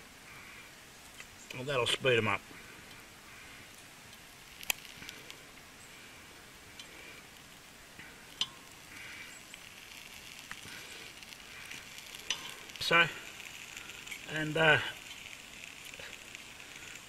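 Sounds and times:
meat sizzling faintly: 0.3s - 17.0s.

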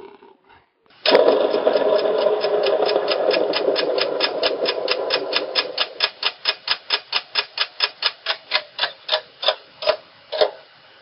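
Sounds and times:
droning hum: 1.1s - 6.3s
clock ticking fast: 1.1s - 10.0s.

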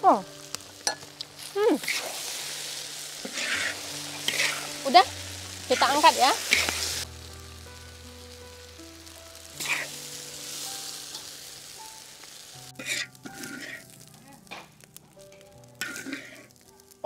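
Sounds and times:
noodles sizzling in a wok: 0.0s - 17.0s
metal spatula scraping wok and bowl: 1.8s - 5.1s, 12.8s - 14.0s, 15.8s - 16.5s.

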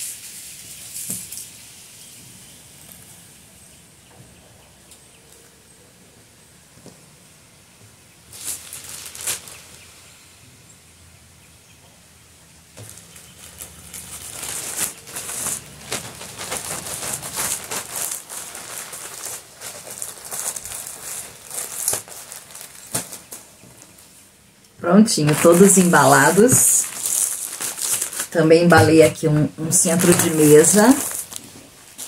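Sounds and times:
plastic packaging crinkling: 8.3s - 10.1s, 12.8s - 24.2s, 25.0s - 32.0s.

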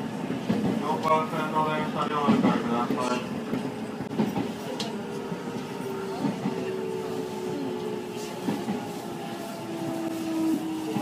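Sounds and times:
train wheels on rails: 0.0s - 11.0s.

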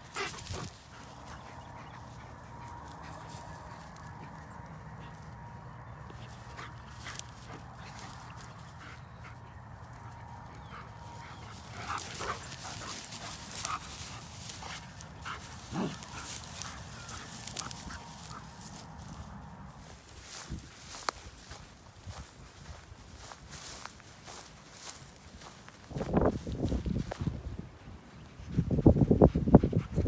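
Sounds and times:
dogs yipping and whining: 0.0s - 5.4s
rustling: 11.0s - 19.4s.

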